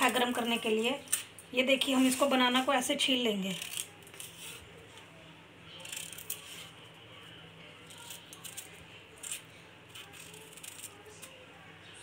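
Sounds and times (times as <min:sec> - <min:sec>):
knife scraping banana skin: 0:03.3 - 0:04.7, 0:05.8 - 0:06.8, 0:07.9 - 0:11.3.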